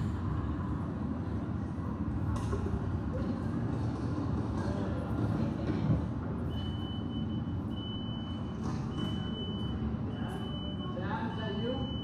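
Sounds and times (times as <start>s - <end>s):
door closing warning beeps: 6.4s - 12.0s.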